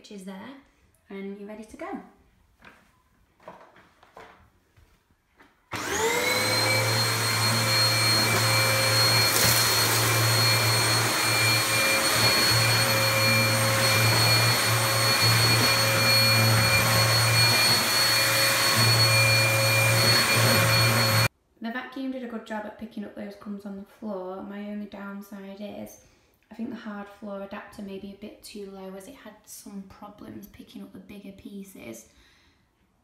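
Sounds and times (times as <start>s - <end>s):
vacuum cleaner motor whine: 5.7s - 21.3s.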